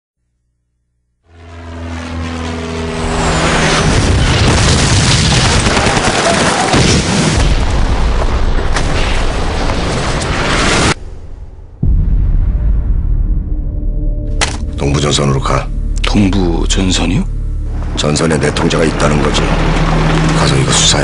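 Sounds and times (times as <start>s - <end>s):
explosions and gunfire: 3.9s - 13.7s
sharp cracks: 4.2s - 11.0s
low held tone: 11.9s - 21.0s.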